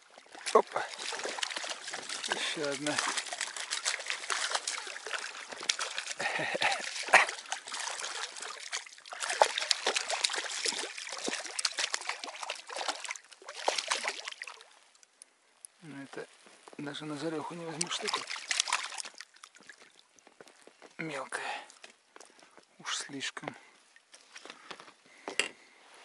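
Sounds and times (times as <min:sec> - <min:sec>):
fish thrashing and splashing: 0:00.0 - 0:15.1, 0:17.6 - 0:20.3.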